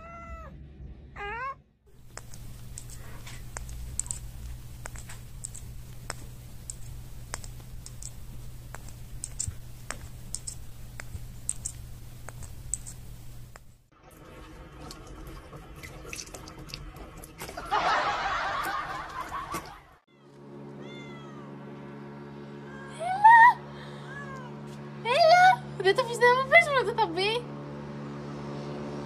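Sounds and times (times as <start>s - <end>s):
cat meowing: 0.0s - 0.5s, 1.2s - 1.6s, 20.1s - 21.5s
irregular sharp clicks and ticks: 1.9s - 13.9s
low steady hum: 1.9s - 19.2s.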